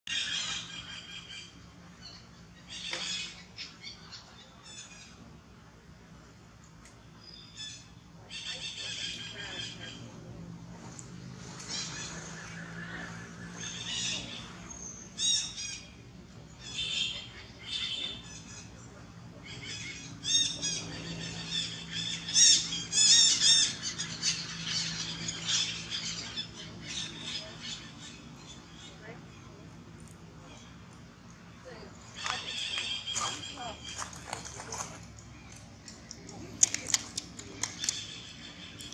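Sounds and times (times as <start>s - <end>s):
faint steady low hum: 0.2s - 38.9s
animal chirps and squeaks: 32.1s - 38.9s.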